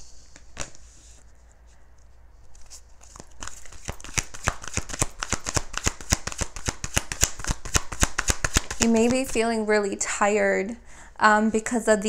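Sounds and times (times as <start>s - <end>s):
cards being shuffled: 2.4s - 9.4s.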